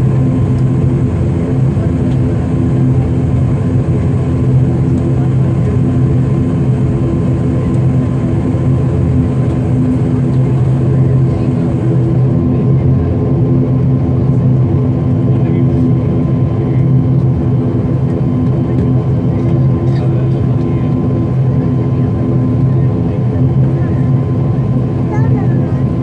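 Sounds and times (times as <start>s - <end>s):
turboprop engines droning: 0.0s - 26.0s.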